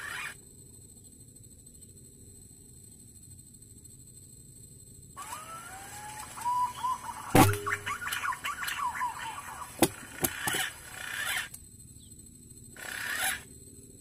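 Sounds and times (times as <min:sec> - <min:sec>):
pigeons whistled calls: 0:05.2 - 0:11.4
sharp clicks: 0:09.8 - 0:11.6.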